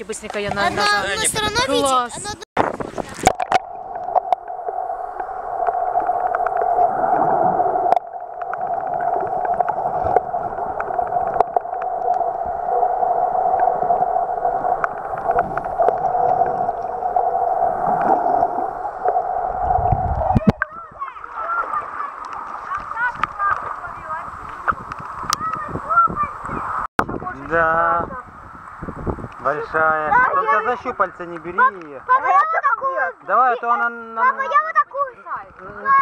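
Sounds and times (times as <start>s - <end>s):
muffled underwater rush: 2.6s - 31.2s
small underwater clicks and knocks: 7.9s - 12.5s, 14.6s - 17.1s, 22.2s - 25.7s.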